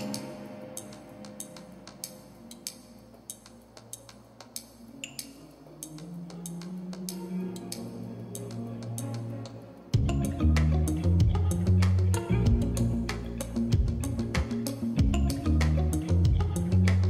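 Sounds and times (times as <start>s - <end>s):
sparse clicking percussion: 0.0s - 9.6s.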